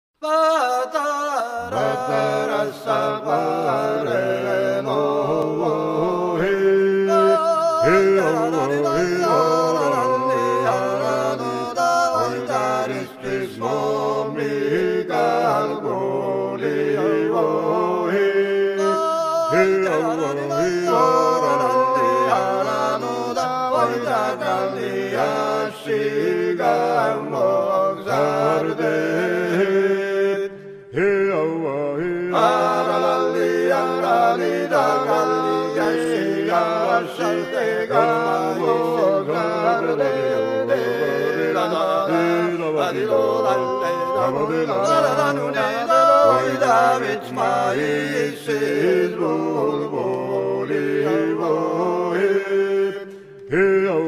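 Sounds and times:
voices singing in polyphony: 0.2 - 54.0.

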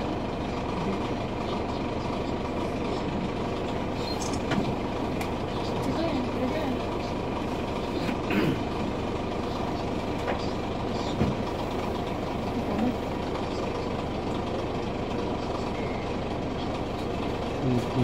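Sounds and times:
boat engine running: 0.0 - 18.0
passengers' voices: 0.0 - 18.0.

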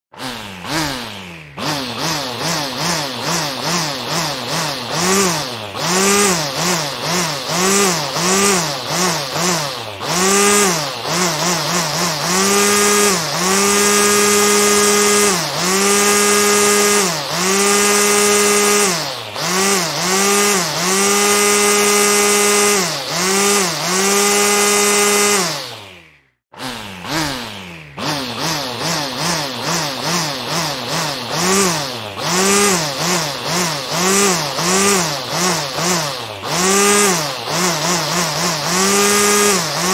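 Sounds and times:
small engine revving: 0.0 - 39.9.

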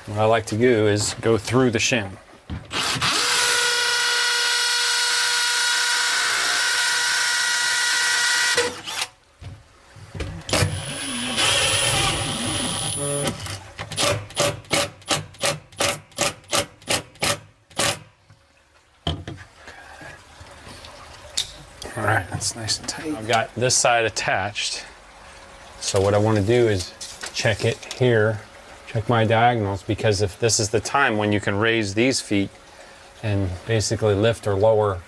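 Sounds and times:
cordless drill whining: 2.7 - 9.1, 10.6 - 13.4
drill short bursts: 2.7 - 9.1, 10.5 - 18.1.

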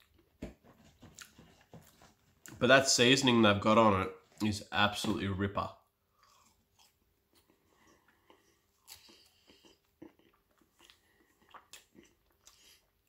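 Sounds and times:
chewing crunchy chips: 6.1 - 13.0.

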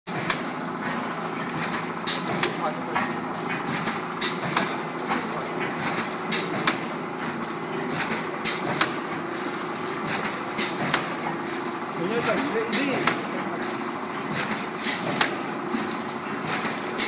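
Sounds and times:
packing machine hum: 0.1 - 17.0
sharp machine clacks: 1.7 - 6.9, 12.0 - 17.0.

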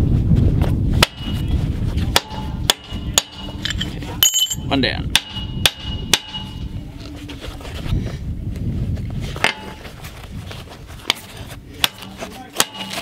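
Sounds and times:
metal plates clinking on workbench: 3.2 - 4.7.

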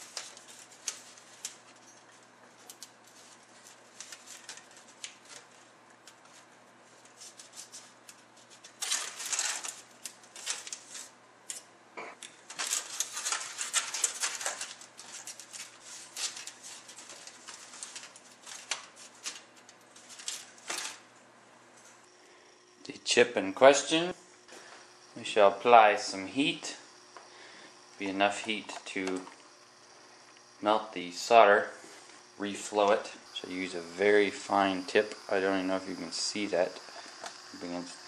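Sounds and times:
aluminium foil crinkling: 0.0 - 11.7, 12.3 - 21.1.

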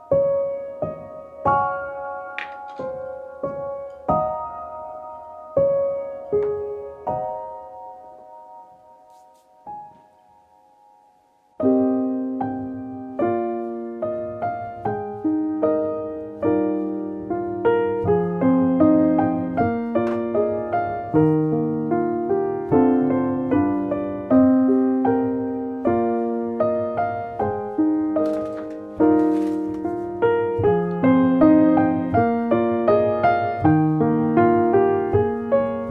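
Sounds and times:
slow gentle piano melody: 0.0 - 35.9.

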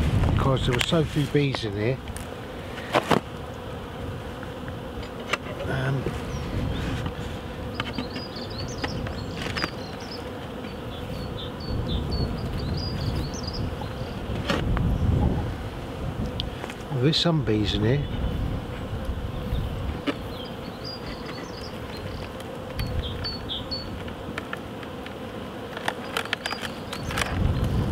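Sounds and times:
bees buzzing: 0.0 - 27.9
hive tool clicks and cracks: 4.4 - 5.7, 7.0 - 10.8, 21.0 - 23.3, 23.9 - 27.5.

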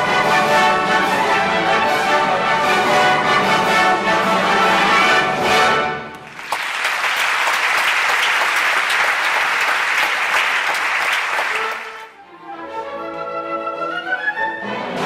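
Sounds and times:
orchestral music: 0.0 - 6.4, 11.4 - 15.0
audience clapping: 6.1 - 12.2.

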